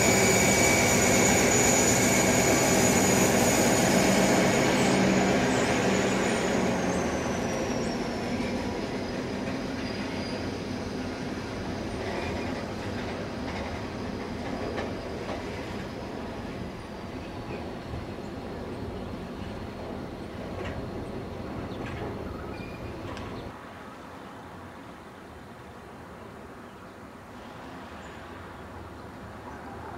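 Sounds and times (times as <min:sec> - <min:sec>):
high squeal: 0:00.0 - 0:11.1, 0:22.2 - 0:23.2
diesel locomotive engine: 0:00.0 - 0:23.6.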